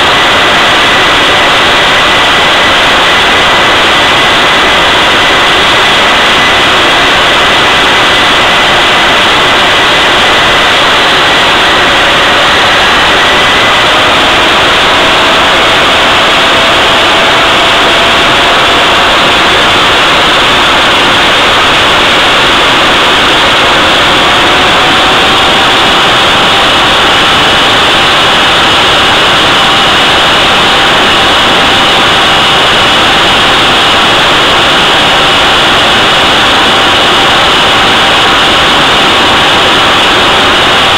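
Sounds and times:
jet engine roar: 0.0 - 40.9.

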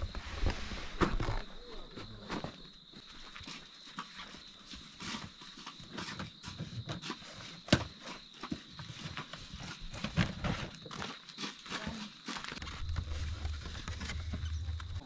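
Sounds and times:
knocks and bumps of bags: 4.1 - 15.0.

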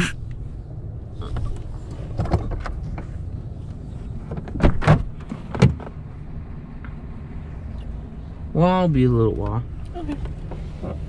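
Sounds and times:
engine and road noise: 0.0 - 11.0
knocks and clunks in cab: 4.2 - 6.0.

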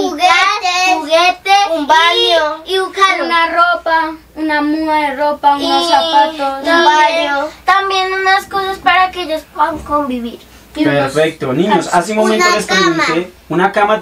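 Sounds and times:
child singing: 0.0 - 8.9.

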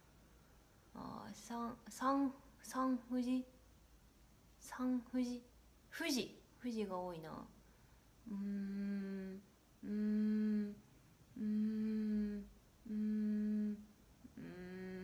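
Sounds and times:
woman humming: 8.2 - 15.0.

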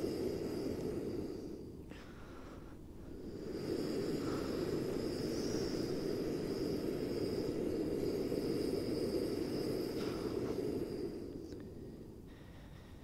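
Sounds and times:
gas stove burner roaring: 0.0 - 12.0.

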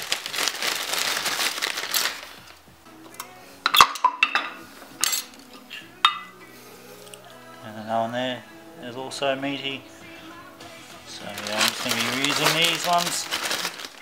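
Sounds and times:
plastic bag crinkling: 0.0 - 2.7, 11.0 - 14.0
metal parts clinking: 3.7 - 5.4.

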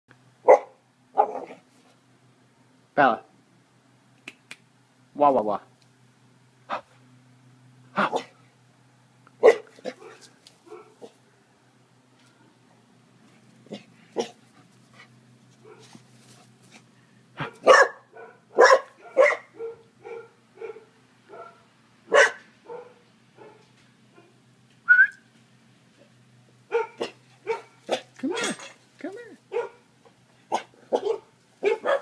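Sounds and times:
dog barking: 0.4 - 1.6, 8.0 - 8.4, 9.4 - 11.1, 14.2 - 14.4, 17.4 - 23.6, 26.7 - 28.6, 29.5 - 29.8, 30.5 - 32.0.

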